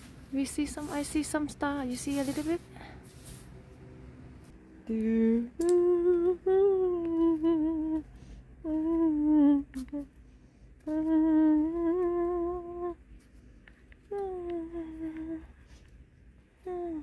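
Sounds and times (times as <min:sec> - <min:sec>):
woman humming slow tune: 0:04.8 - 0:10.1, 0:10.8 - 0:13.0, 0:14.1 - 0:15.6, 0:16.6 - 0:17.0.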